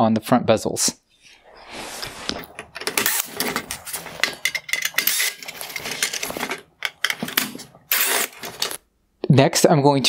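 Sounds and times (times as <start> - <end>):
sharp clicks and metallic clinks: 2.6 - 8.8
cordless drill motor: 7.9 - 8.6.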